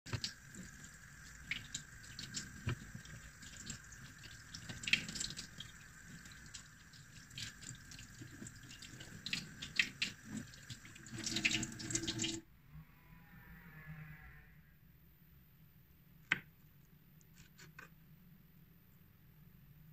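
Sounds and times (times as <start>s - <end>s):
water splashing: 0.1s - 12.4s.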